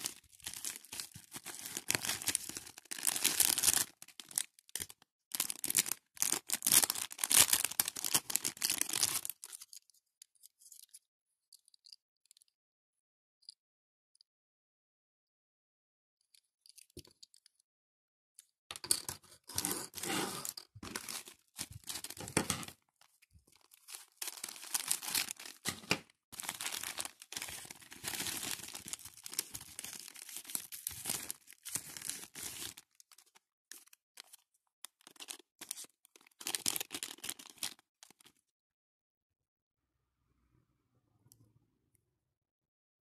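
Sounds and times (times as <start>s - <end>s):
packaging crinkling and tearing: 0.0s - 9.8s, 19.5s - 38.3s.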